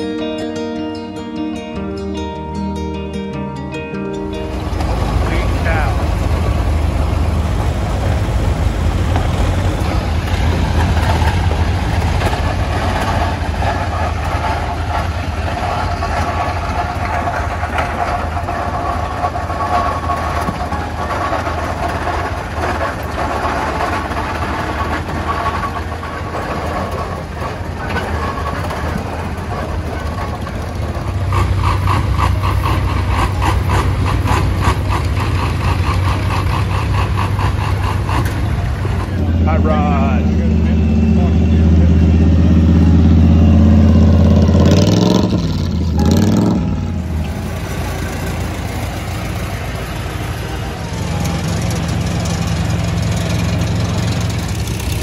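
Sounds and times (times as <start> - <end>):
tractor engines passing: 0.0 - 55.0
tractor engine rapid firing beat: 4.3 - 39.2, 46.9 - 55.0.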